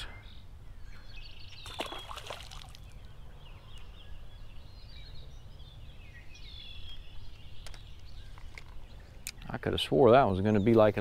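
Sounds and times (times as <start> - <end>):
songbirds chirping and singing: 0.0 - 11.0.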